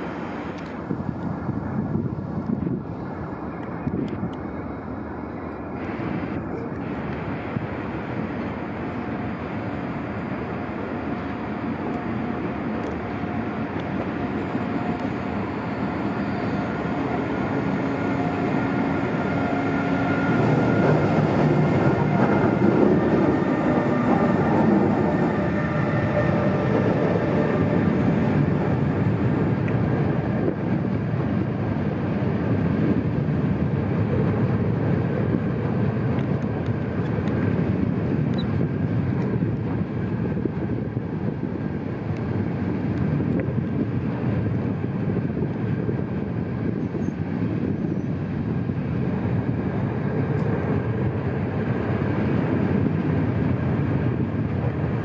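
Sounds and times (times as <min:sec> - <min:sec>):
train wheels rumbling on rails: 0:00.0 - 0:55.0.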